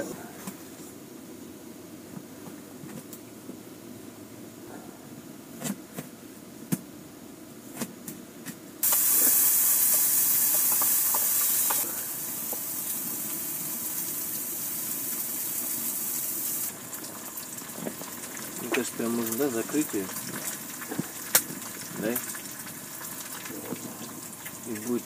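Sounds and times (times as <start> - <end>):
eggs sizzling in frying pan: 8.8 - 25.0.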